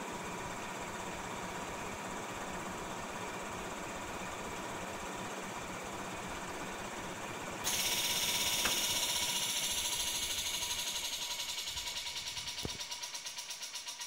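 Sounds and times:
air compressor running: 0:00.0 - 0:14.0
loud hiss of air: 0:07.6 - 0:13.7.

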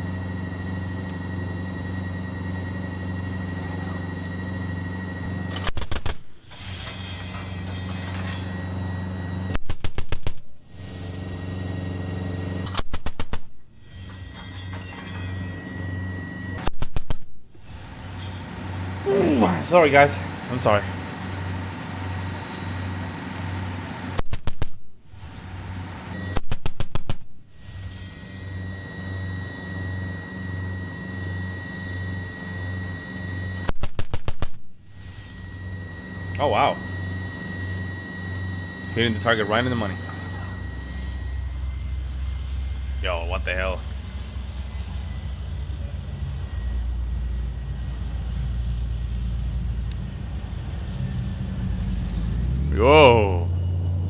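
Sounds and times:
low throbbing drone: 0:00.0 - 0:54.0
tank engine and track rumble: 0:00.0 - 0:54.0
autocannon firing rapid bursts: 0:33.8 - 0:34.6.

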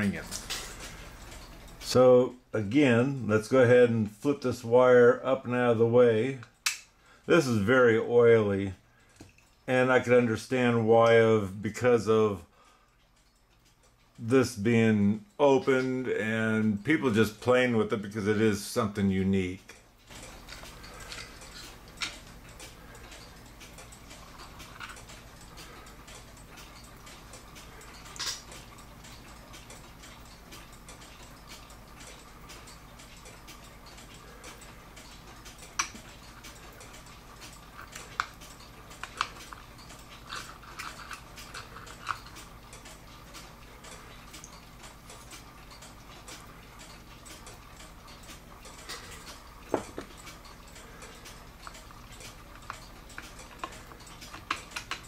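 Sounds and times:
clock ticking: 0:00.0 - 0:55.0
metallic clicks and knocks: 0:20.0 - 0:26.9, 0:28.0 - 0:32.7, 0:35.0 - 0:43.6, 0:48.1 - 0:55.0.

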